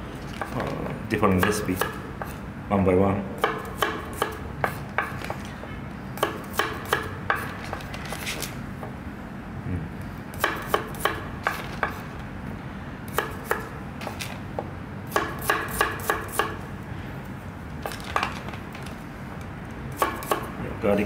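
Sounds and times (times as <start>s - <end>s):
knife chopping on cutting board: 1.4s - 2.4s, 10.4s - 12.0s, 15.1s - 16.6s.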